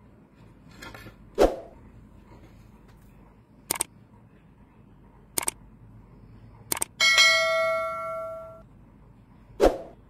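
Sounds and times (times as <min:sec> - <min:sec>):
mouse clicks: 0:03.7 - 0:03.9, 0:05.4 - 0:05.6
bell chime: 0:07.0 - 0:08.6.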